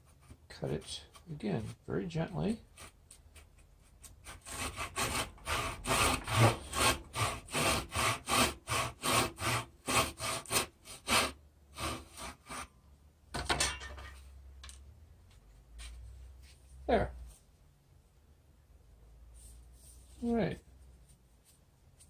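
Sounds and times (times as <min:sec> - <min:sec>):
hand saw cutting wood: 0:04.2 - 0:12.7.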